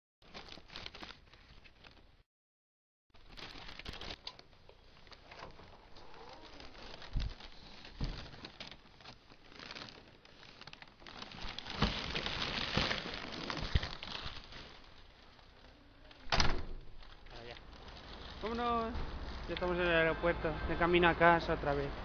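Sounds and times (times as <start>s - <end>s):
fabric rustling on camera: 3.2s - 16.3s.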